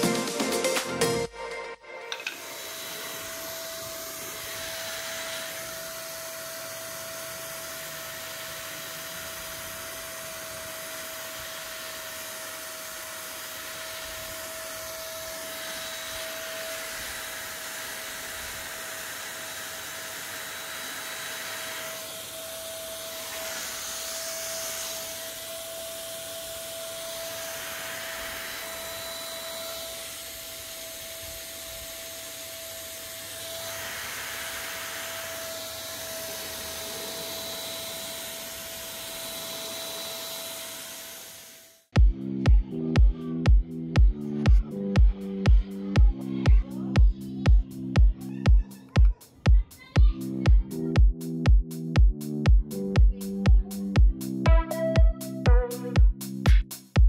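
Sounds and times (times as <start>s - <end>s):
paint sprayer motor whine: 2.0s - 42.0s
hiss of air and spray: 12.8s - 41.9s.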